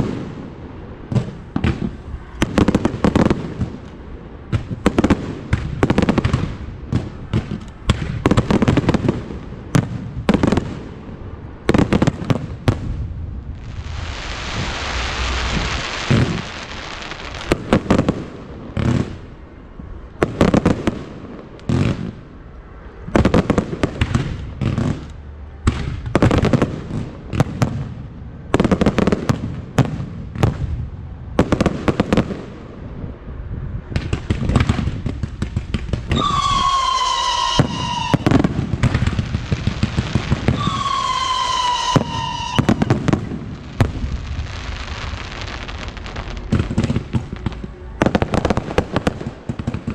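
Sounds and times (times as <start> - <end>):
fireworks bangs: 0.0 - 22.4, 23.0 - 32.7, 33.9 - 49.9
high falling whistle: 36.1 - 38.3, 40.6 - 42.8.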